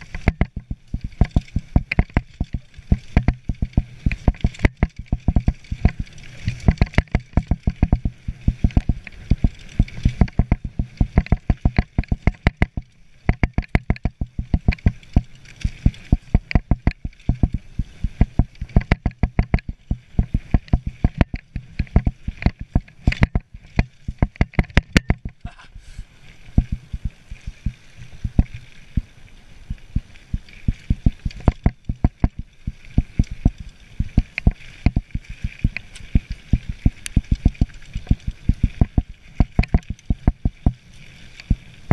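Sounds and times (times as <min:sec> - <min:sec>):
bike knocks and rattles: 0:00.0 - 0:25.6, 0:30.6 - 0:35.7
wind: 0:00.0 - 0:41.9.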